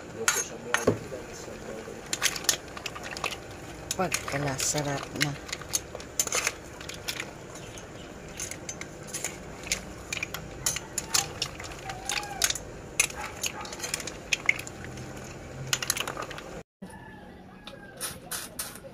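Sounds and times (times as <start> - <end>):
metal utensil scraping a wok: 2.0 - 16.4.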